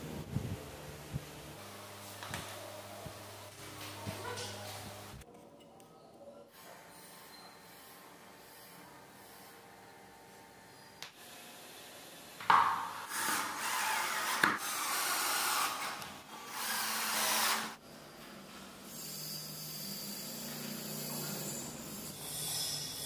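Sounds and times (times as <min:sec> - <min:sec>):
drill driving screws into wood: 0:13.0 - 0:17.8.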